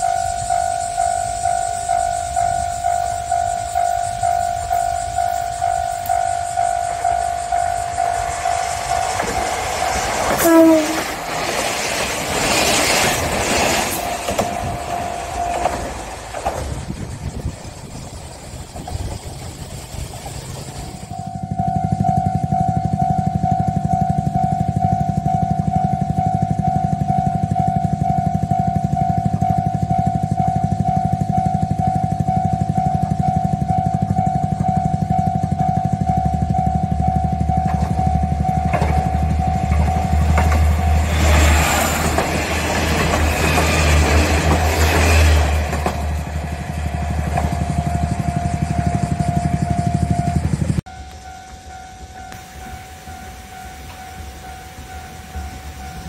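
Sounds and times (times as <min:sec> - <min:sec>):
level-crossing electronic bell: 0:00.0 - 0:09.6, 0:14.1 - 0:16.2, 0:21.1 - 0:56.0
diesel railcar engine rumble: 0:00.0 - 0:56.0
train wheel noise: 0:00.0 - 0:56.0.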